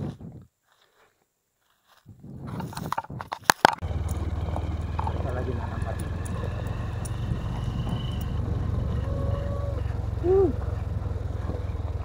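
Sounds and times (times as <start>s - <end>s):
motorcycle engine running: 3.8s - 12.0s
rising and falling call: 3.8s - 12.0s.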